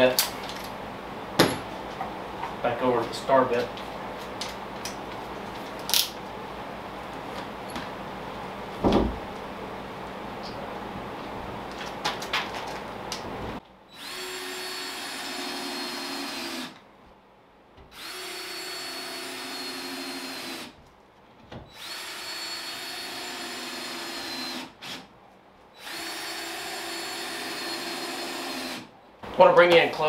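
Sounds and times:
cordless drill driving screws: 0:14.0 - 0:16.8, 0:18.0 - 0:20.7, 0:21.7 - 0:25.1, 0:25.8 - 0:28.9.

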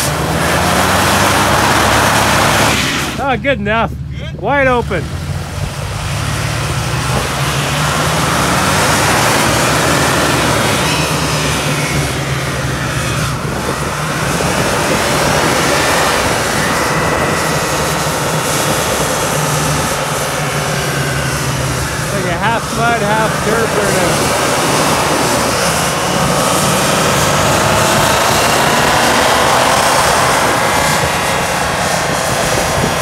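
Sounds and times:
pickup engine revving: 0:00.0 - 0:33.0.

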